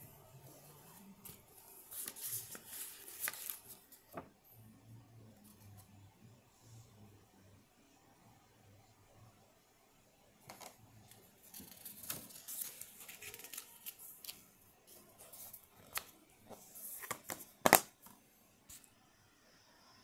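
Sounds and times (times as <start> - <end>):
paper rustling: 1.2 - 4.3, 11.4 - 17.9.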